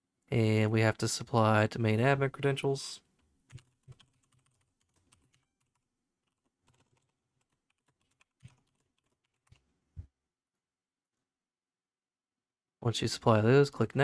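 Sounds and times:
faint keyboard typing: 3.0 - 10.1.

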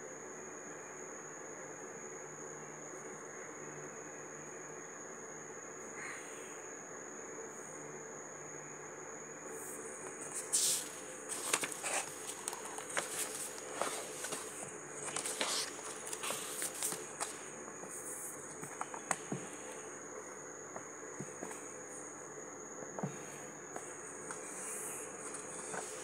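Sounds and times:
paper rustling and light taps: 10.0 - 17.4.

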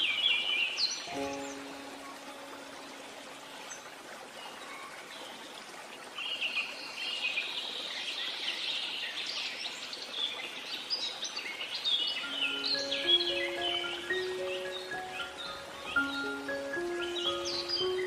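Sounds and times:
songbirds chirping and trilling: 0.0 - 5.5, 6.2 - 18.0
steady hiss: 12.3 - 18.0.

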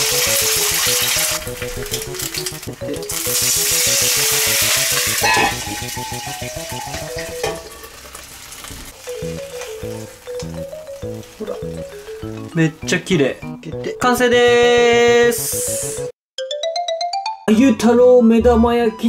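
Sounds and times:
background music with beat: 0.0 - 7.7, 9.1 - 16.1
egg sizzling in oil: 0.0 - 12.9.

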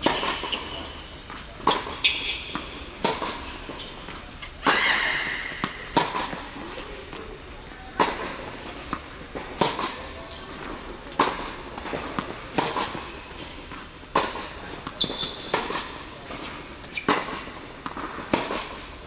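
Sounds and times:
shoe squeaking on court: 0.0 - 6.9, 14.4 - 17.5
tennis balls bouncing: 0.0 - 19.0
tennis balls struck by racquets: 0.0 - 19.0.

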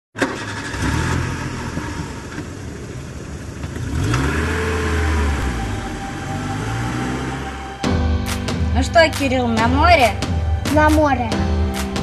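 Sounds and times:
car engine revving: 0.2 - 12.0.

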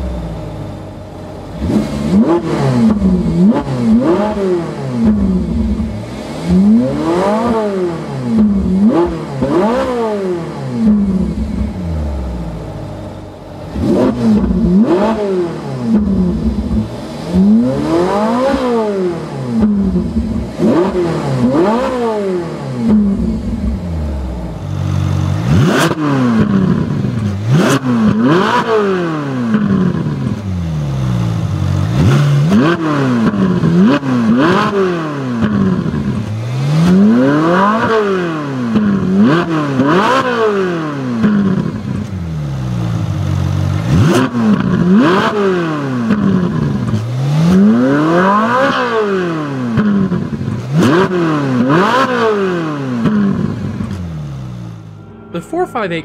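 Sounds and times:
exhaust cracks: 0.0 - 28.5, 49.7 - 55.0
car engine revving: 0.0 - 56.0.

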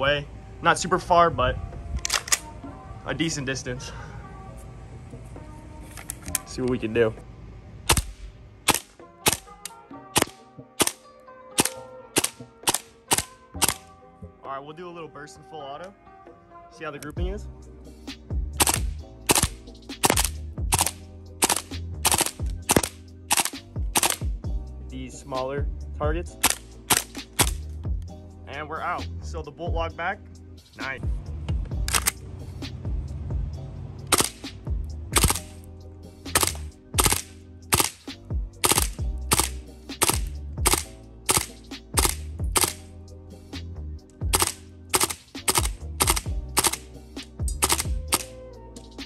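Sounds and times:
airsoft rifle firing bursts: 11.6 - 13.8, 18.6 - 24.3, 34.1 - 34.4, 35.2 - 35.5, 36.3 - 42.8, 44.3 - 46.9, 47.6 - 48.3
music with steady beat: 17.2 - 49.0.

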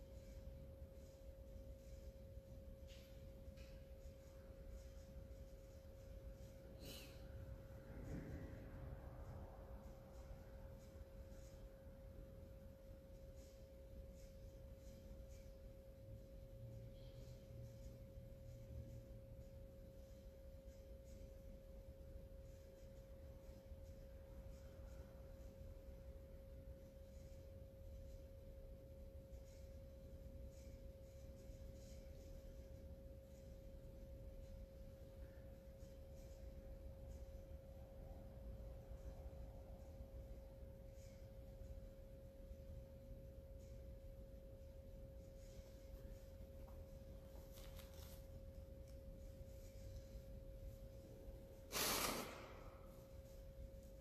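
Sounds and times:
faint steady hum: 0.0 - 54.0
short loud rushing noise: 51.7 - 52.8.

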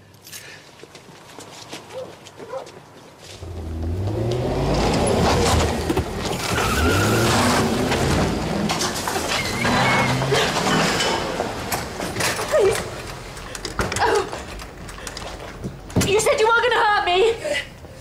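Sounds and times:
car engine revving: 3.4 - 12.0.

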